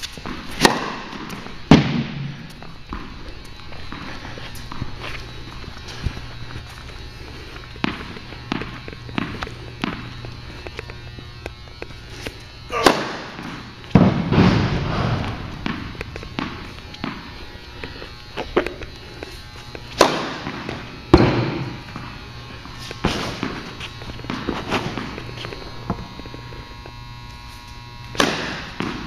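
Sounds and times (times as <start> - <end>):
racket hitting tennis ball: 0.0 - 3.2, 7.7 - 10.9, 12.2 - 17.4, 18.4 - 22.1, 22.8 - 26.0, 28.1 - 29.0
tennis ball bouncing on hard court: 0.2 - 3.2, 7.7 - 11.0, 12.8 - 17.4, 18.4 - 22.1, 23.0 - 26.0, 28.1 - 29.0.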